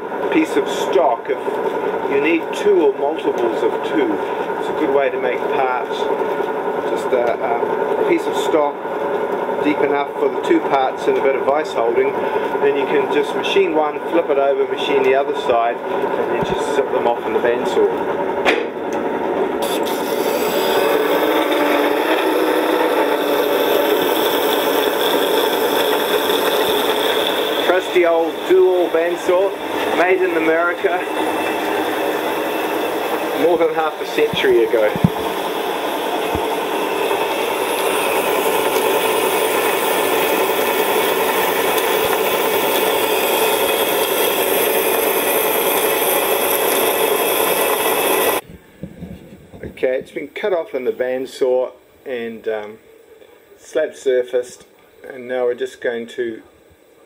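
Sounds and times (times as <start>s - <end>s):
bandsaw cutting metal: 19.6s - 48.4s.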